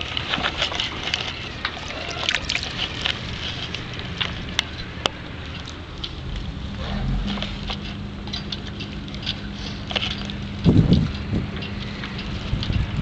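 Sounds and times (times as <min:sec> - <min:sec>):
sea water sloshing and splashing: 0:00.0 - 0:10.6
small clicks and ticks: 0:07.3 - 0:13.0.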